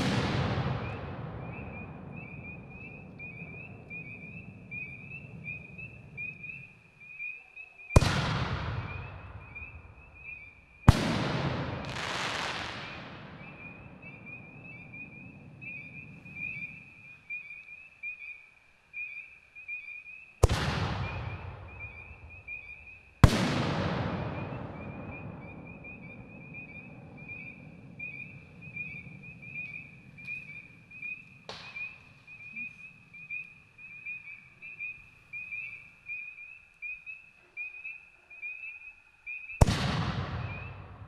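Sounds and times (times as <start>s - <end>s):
mortar launch bang: 39.6s - 41.0s.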